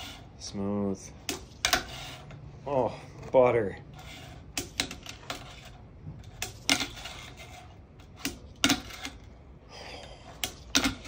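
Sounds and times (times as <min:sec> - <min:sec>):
fingerboard wheels rolling rumble: 0:03.2 - 0:09.3.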